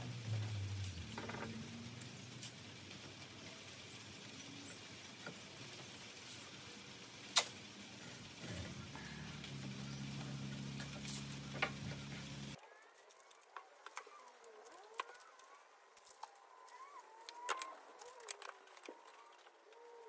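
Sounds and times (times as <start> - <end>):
steady low hum: 0.0 - 12.6.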